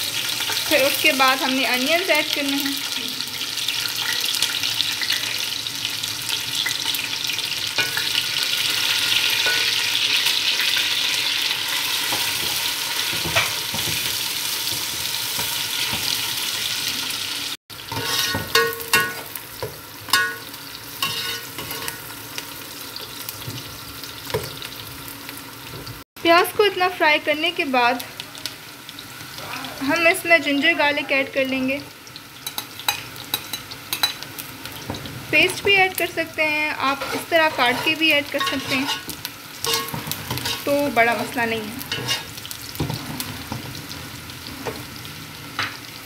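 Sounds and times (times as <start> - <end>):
onions sizzling in hot oil: 0.0 - 46.0
metal spoon scraping a pot: 17.9 - 19.3, 21.0 - 22.1, 36.8 - 40.8, 41.9 - 42.3.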